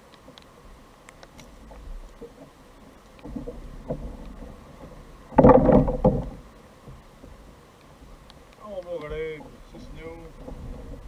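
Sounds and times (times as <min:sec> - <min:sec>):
soft knocks and rustling: 0:01.2 - 0:11.0
rapid rubbing and knocking: 0:05.3 - 0:06.4.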